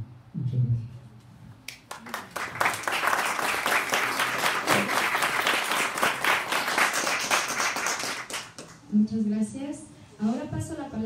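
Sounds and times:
people clapping: 1.7 - 8.9.

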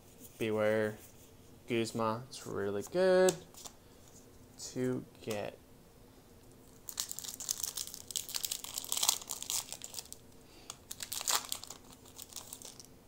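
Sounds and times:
foil wrapper crinkling and tearing: 6.6 - 12.9.

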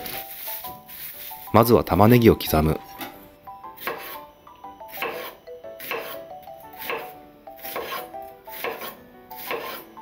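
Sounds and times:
soft background music: 0.0 - 10.0
knife cutting onion on board: 3.8 - 4.2, 4.9 - 10.0.

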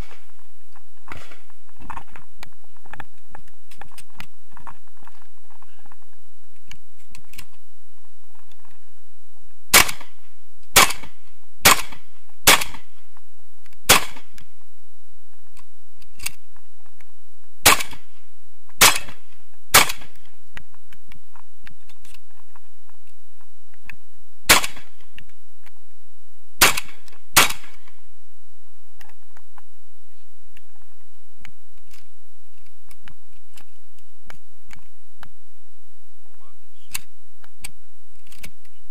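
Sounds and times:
shotgun shots: 0.0 - 0.3, 9.7 - 13.0, 13.9 - 14.4, 17.6 - 18.1, 18.8 - 20.2, 24.5 - 25.0, 26.6 - 27.9.

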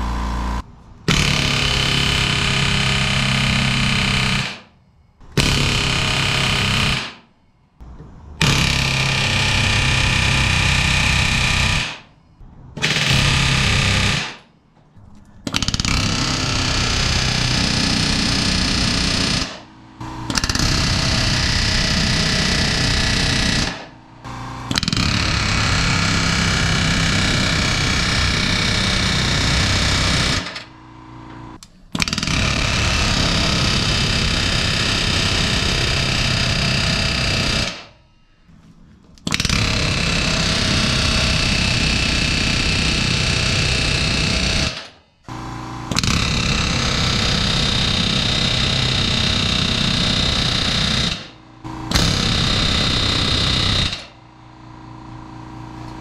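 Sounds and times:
pneumatic rivet gun hammering: 15.4 - 23.9, 39.2 - 54.1.

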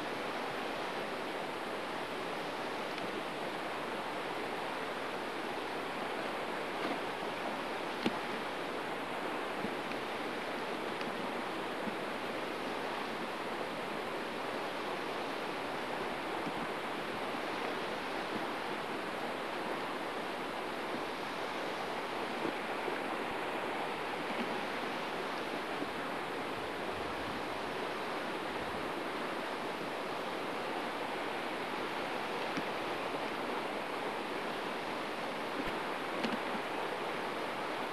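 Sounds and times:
river water rushing: 0.0 - 37.9.

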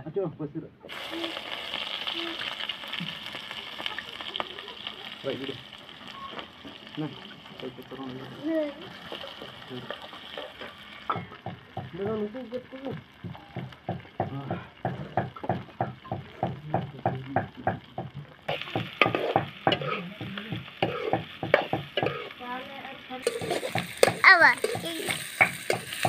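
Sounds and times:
low sizzle: 0.4 - 26.0
metal spatula scraping a pan: 18.5 - 20.1, 20.8 - 22.4, 23.2 - 26.0.

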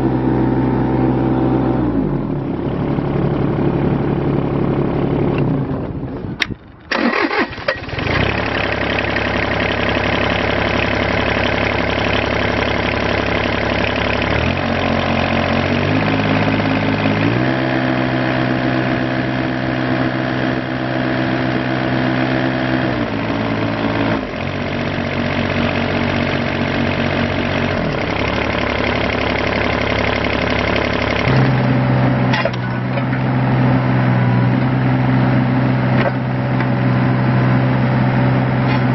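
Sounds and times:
diesel engine running: 0.0 - 38.9
engine restarting: 5.4 - 10.3, 27.9 - 33.2.

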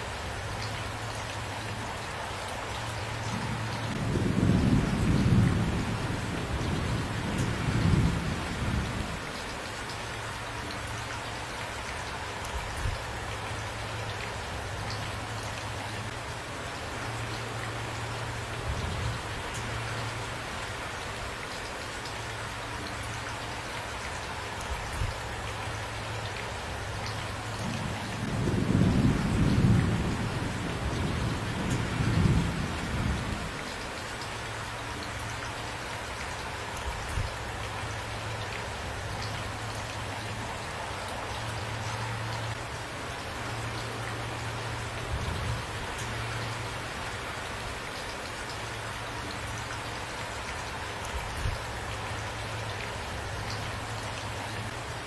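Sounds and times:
steady rain: 0.0 - 55.0
rolling thunder: 3.4 - 9.2, 27.7 - 33.5.

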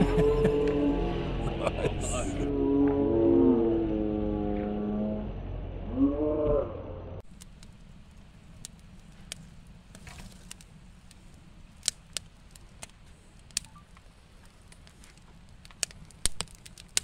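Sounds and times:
low steady rumble: 0.0 - 17.0
campfire crackling and popping: 7.2 - 17.0.

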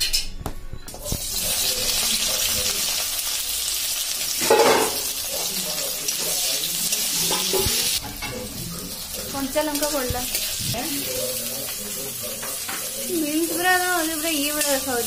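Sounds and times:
onions sizzling in hot oil: 1.0 - 15.0.

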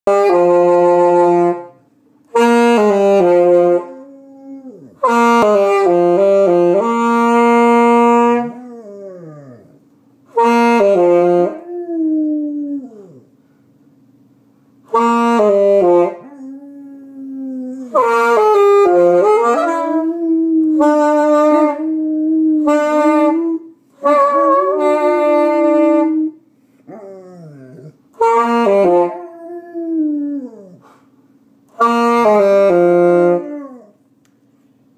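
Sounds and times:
saxophone held notes: 0.1 - 4.4, 5.0 - 9.0, 10.3 - 12.0, 14.9 - 16.8, 17.4 - 26.4, 28.2 - 30.4, 31.7 - 33.8
dog howling: 3.8 - 5.1, 8.4 - 9.8, 11.5 - 13.3, 16.2 - 23.6, 26.9 - 28.0.

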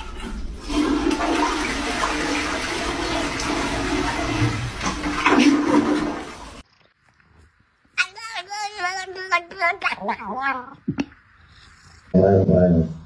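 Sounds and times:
toilet flushing: 0.0 - 6.6
water gurgling: 0.0 - 6.6.

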